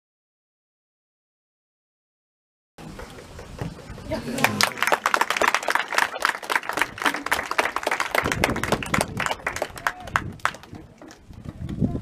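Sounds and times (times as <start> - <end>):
people clapping: 2.9 - 11.8.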